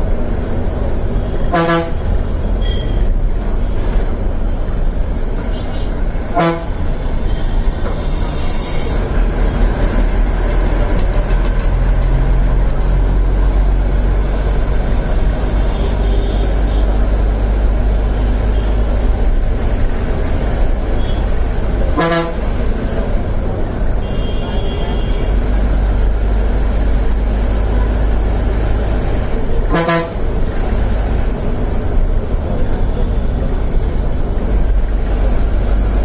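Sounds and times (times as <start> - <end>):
bus diesel engine drone: 0.0 - 36.0
road rumble: 0.0 - 36.0
vehicle horn toot: 1.3 - 2.0, 2.6 - 3.1, 5.5 - 6.8, 22.0 - 22.4, 24.0 - 25.4, 29.7 - 30.2.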